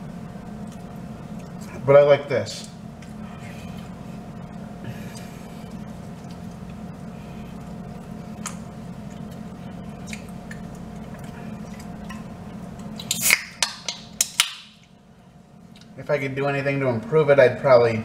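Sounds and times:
low room hum: 0.0s - 18.0s
man chewing: 0.4s - 1.8s, 2.6s - 15.0s
wet mouth clicks: 10.0s - 12.2s, 12.8s - 14.4s.

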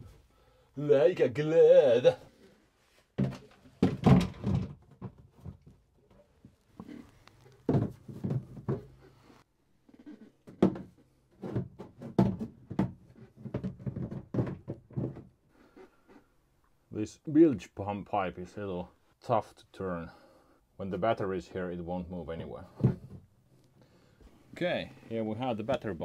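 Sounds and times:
plastic knocking on plastic: 7.7s - 8.9s, 10.5s - 15.3s.

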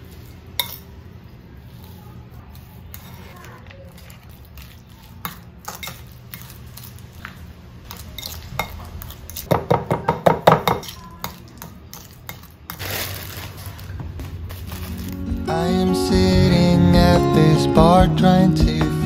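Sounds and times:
fork scraping ceramic bowl: 2.5s - 6.6s.

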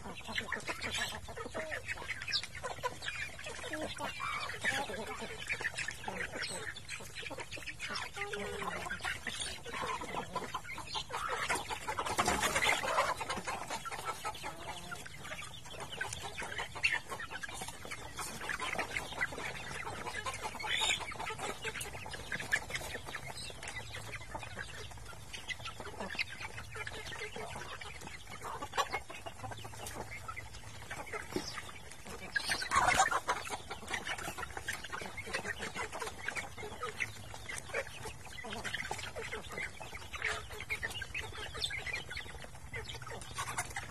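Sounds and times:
chickens clucking and chicks cheeping: 0.0s - 43.9s.

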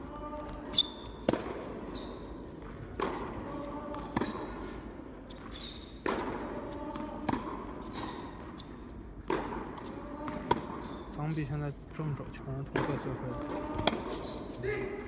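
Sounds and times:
tennis ball bouncing: 0.5s - 1.8s, 2.4s - 4.7s, 5.3s - 10.9s, 12.7s - 14.4s
racket striking tennis ball: 1.1s - 1.8s, 2.9s - 4.7s, 6.0s - 8.6s, 9.2s - 10.9s, 12.7s - 14.4s.

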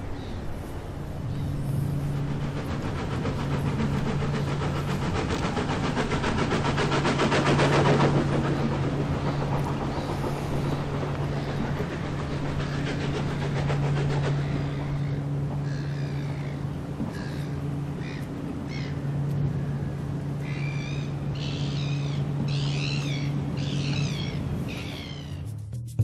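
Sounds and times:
steady low hum: 0.0s - 25.8s
model train wheels clicking: 2.0s - 15.2s.

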